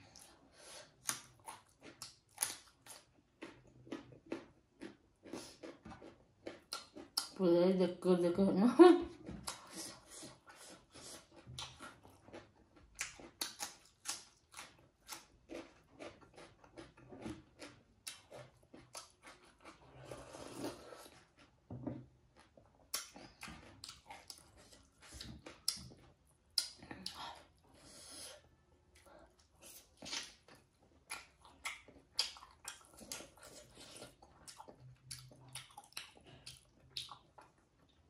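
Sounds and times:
wet chewing and lip smacks: 1.0 - 7.4, 9.4 - 19.9, 22.3 - 27.6, 29.0 - 38.0
slurping from a bowl: 19.7 - 21.3.

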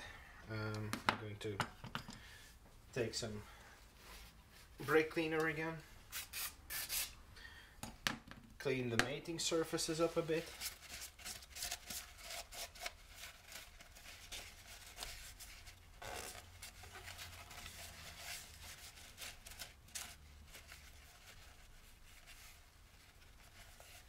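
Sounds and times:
paper towel scratchy wiping: 9.7 - 24.0.

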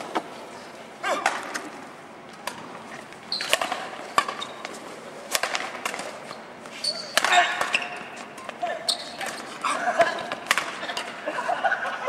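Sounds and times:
shoe squeak on court floor: 3.3 - 4.7, 6.2 - 9.6
racket striking shuttlecock: 3.4 - 4.7, 5.3 - 6.2, 7.0 - 8.6, 10.2 - 11.2.

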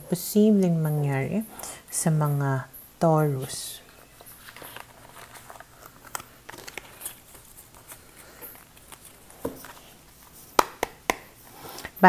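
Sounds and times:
cards sliding and tapping: 4.2 - 11.9.

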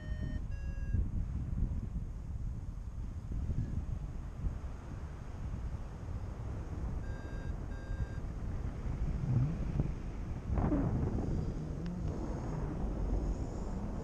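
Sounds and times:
short steady beeps: 0.0 - 1.0, 7.0 - 8.2
wind rushing over microphone: 0.0 - 14.0.

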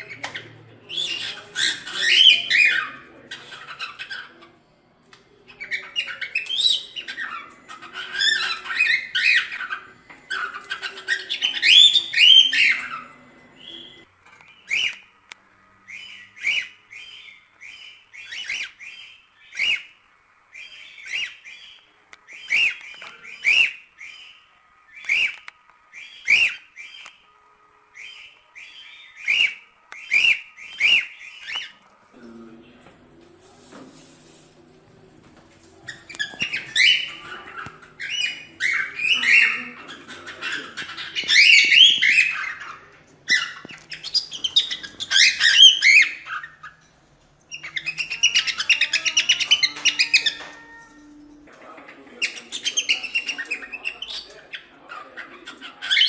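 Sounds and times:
cockatiel warbling song: 0.0 - 4.6, 5.5 - 15.1, 35.8 - 46.9, 47.5 - 56.0
cockatiel chirps: 35.8 - 46.8, 47.5 - 51.0.

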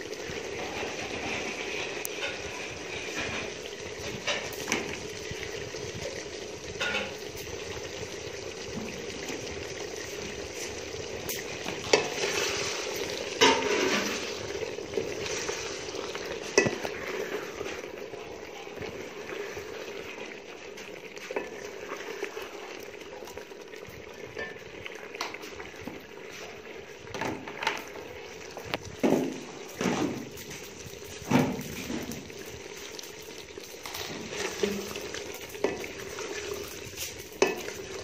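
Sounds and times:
curry simmering in pot: 0.0 - 38.0
metal ladle scraping and knocking pot: 0.3 - 4.9, 6.7 - 7.3, 10.6 - 17.9, 33.8 - 38.0.

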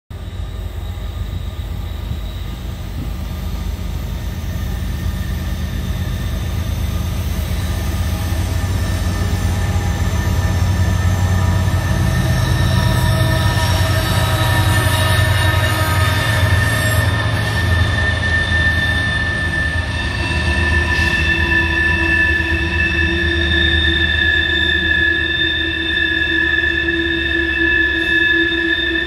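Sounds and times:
freight train rumbling: 0.1 - 29.0
train wheels squealing: 0.1 - 29.0.

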